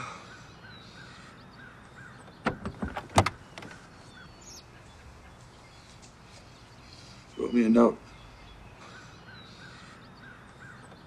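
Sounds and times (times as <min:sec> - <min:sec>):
faint birds chirping: 0:00.0 - 0:11.0
sharp knocks and clunks: 0:02.4 - 0:03.8.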